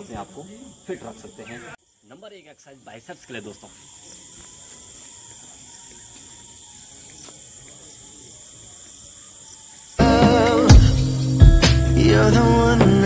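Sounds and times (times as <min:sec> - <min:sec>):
crickets chirping: 0:00.0 - 0:13.0
background music with a beat: 0:10.0 - 0:13.0.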